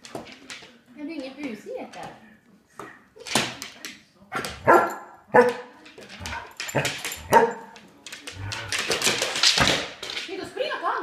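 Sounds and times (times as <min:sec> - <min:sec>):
dog barking: 0:04.6 - 0:05.7, 0:07.3 - 0:07.7.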